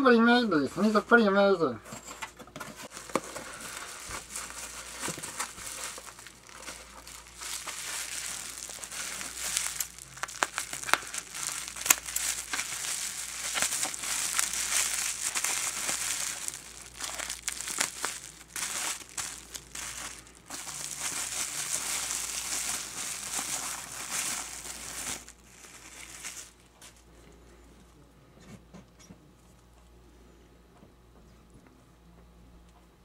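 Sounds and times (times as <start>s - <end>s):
bubble wrap crinkling: 2.8s - 27.1s.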